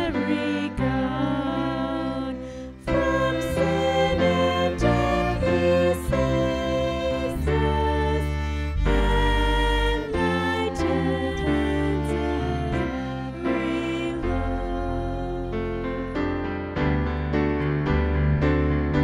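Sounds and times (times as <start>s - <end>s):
band playing slow hymn: 0.0s - 16.9s.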